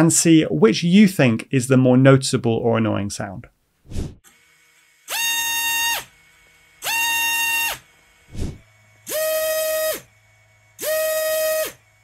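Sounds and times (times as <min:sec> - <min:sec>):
drone motor whining: 0:06.8 - 0:12.0.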